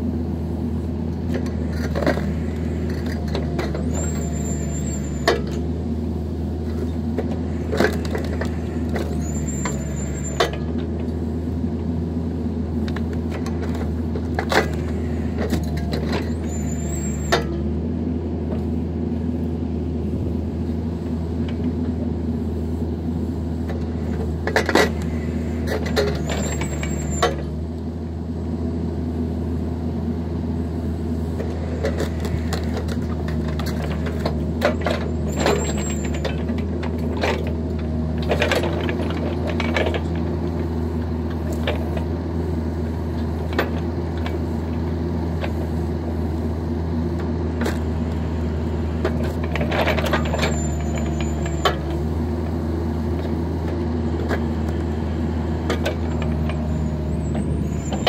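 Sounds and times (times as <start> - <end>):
excavator diesel engine running: 0.0 - 58.0
short high squeal: 3.9 - 5.3, 9.1 - 10.5, 16.2 - 17.5, 26.2 - 27.4, 50.2 - 51.7, 56.6 - 58.0.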